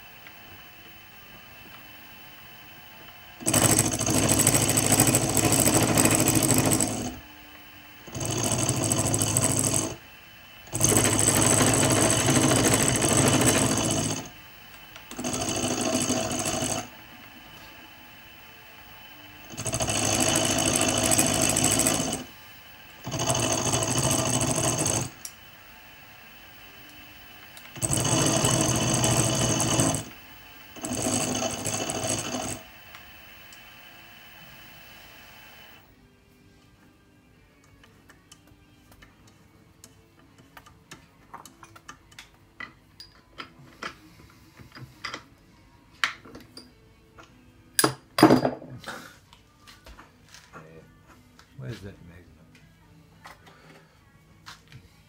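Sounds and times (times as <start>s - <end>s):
milling machine cutting metal: 3.1s - 7.2s, 8.0s - 17.4s, 18.2s - 35.8s.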